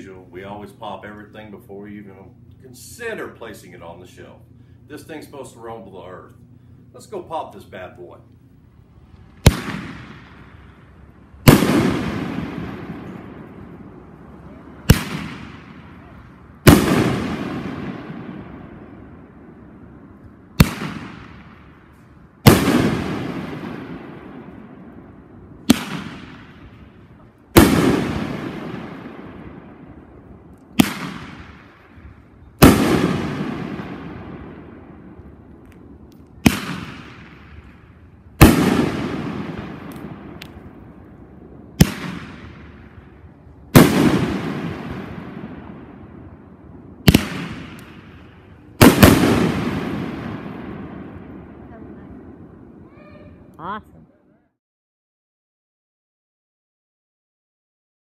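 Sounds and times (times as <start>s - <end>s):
echoes of booms: 9.3s - 53.0s
firework bangs and booms: 9.4s - 19.3s, 20.6s - 53.2s.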